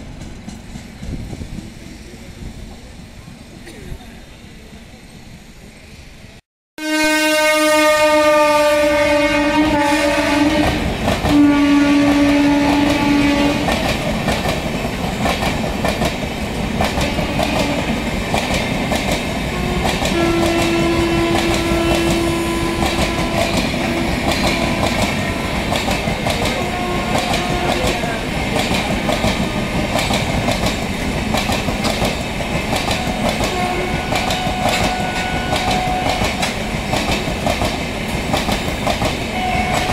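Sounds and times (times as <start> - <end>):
locomotive horn blasts: 6.8 - 13.7, 17.0 - 18.0, 19.5 - 25.7, 26.5 - 28.2, 33.0 - 36.3, 39.3 - 39.9
train wheels clacking over rail joints: 10.4 - 39.9.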